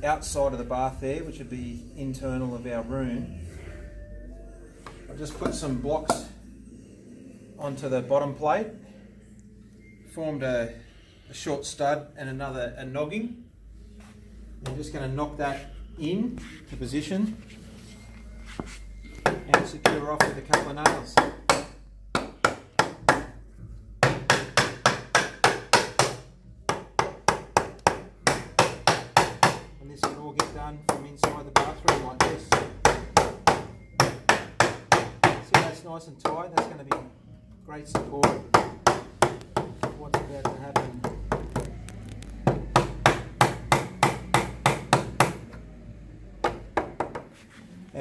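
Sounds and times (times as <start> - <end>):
hammer driving nails into wood: 24.0 - 29.6.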